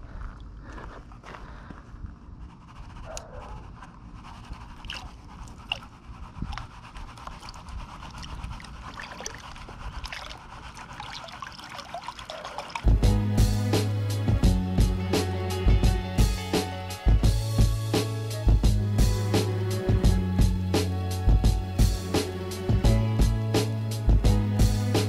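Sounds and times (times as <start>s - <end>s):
water and gravel trickling: 8.1s - 12.9s
loud music: 12.9s - 25.0s.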